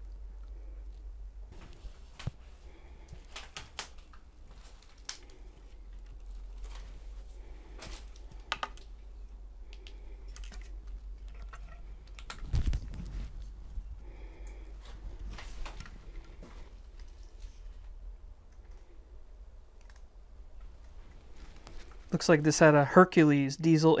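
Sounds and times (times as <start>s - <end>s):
steady low hum: 0.0s - 23.6s
clicks taps and creaks of wood: 3.1s - 7.0s, 7.8s - 9.0s, 9.6s - 13.5s, 14.4s - 18.9s.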